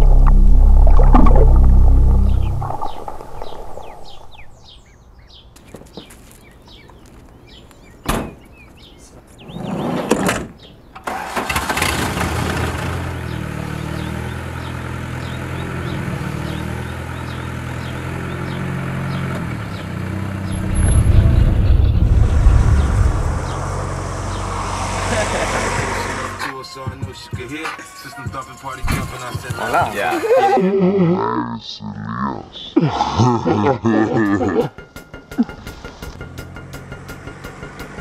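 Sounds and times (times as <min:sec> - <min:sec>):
engine cranking: 0:11.0 - 0:12.9.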